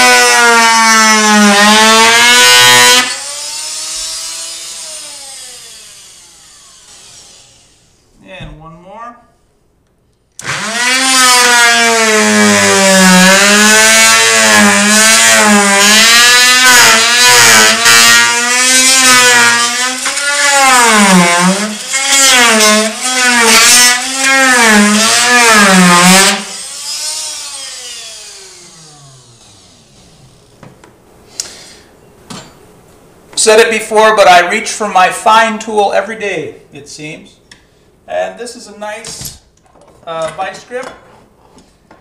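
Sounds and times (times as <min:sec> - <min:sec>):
oscillating multi-tool cutting wood: 0:00.0 - 0:07.8, 0:10.4 - 0:30.3.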